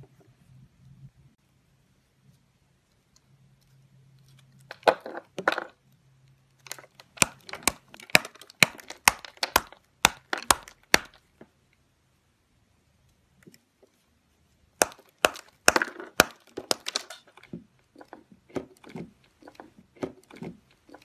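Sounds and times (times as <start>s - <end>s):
brittle soap crunching and cracking: 3.1s - 11.3s, 14.8s - 21.0s.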